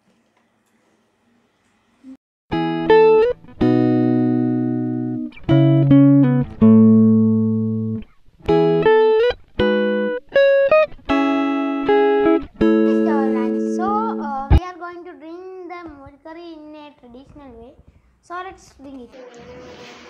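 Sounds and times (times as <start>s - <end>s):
guitar chords ringing: 2.5s - 14.6s.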